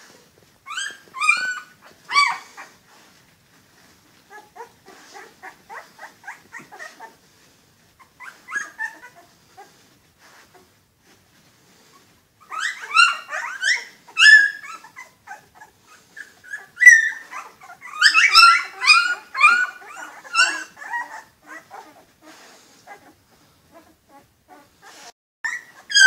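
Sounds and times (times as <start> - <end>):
puppies crying: 0.7 - 2.8, 4.3 - 7.2, 8.0 - 9.7, 12.4 - 26.0.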